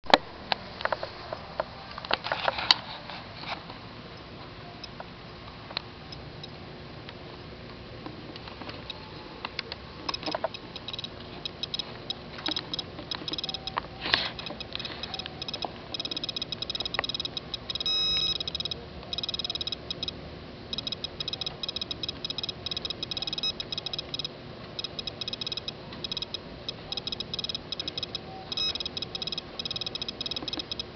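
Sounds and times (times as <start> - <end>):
dosimeter clicking: 8.8 - 30.9
short steady beep: 10.8 - 30.9.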